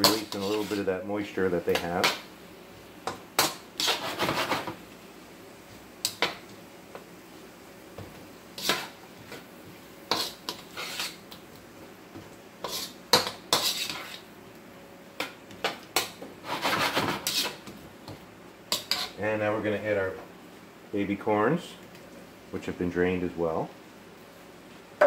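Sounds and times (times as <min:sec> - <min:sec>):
spatula scraping a wok: 0:00.0 - 0:01.0, 0:03.4 - 0:04.8, 0:08.5 - 0:11.4, 0:12.6 - 0:14.3, 0:16.0 - 0:17.7, 0:18.7 - 0:19.2.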